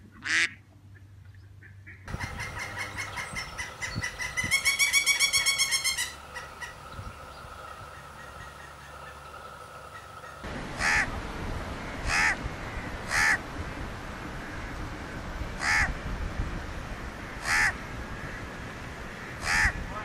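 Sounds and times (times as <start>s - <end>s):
steady background noise: 0.0s - 20.0s
crow cawing: 9.9s - 11.1s, 12.0s - 13.4s, 15.6s - 15.9s, 17.4s - 18.4s, 19.2s - 19.8s.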